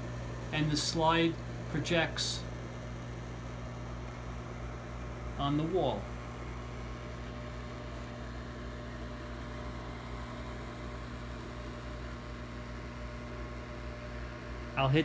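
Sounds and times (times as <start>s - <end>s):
slide projector fan humming: 0.0s - 15.0s.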